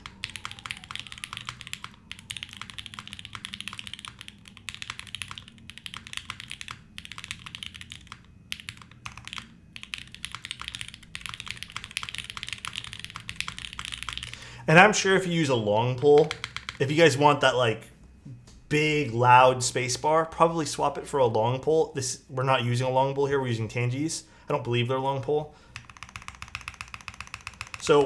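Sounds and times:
mechanical keyboard typing: 0.0s - 14.4s, 16.0s - 16.9s, 25.7s - 28.0s.

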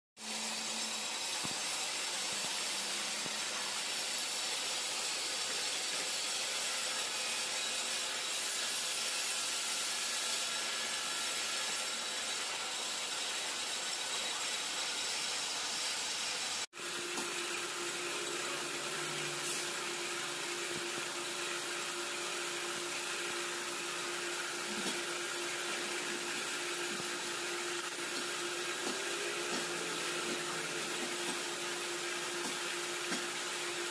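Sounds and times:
workshop machinery hiss: 0.2s - 33.9s
steady hum: 16.8s - 33.9s.

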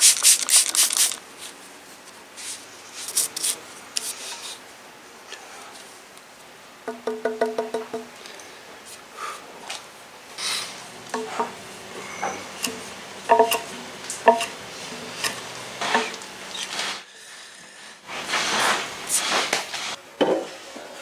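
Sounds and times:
taps and knocks on wood and metal: 6.9s - 8.1s, 11.1s - 11.6s, 12.2s - 14.5s
hand plane shaving timber: 11.2s - 17.0s.

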